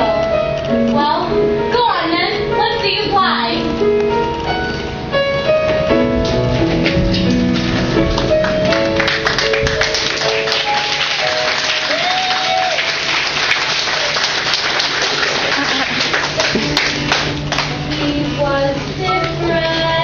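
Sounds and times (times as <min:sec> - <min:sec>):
piano melody: 0:00.0 - 0:20.0
audience applause: 0:08.1 - 0:17.8.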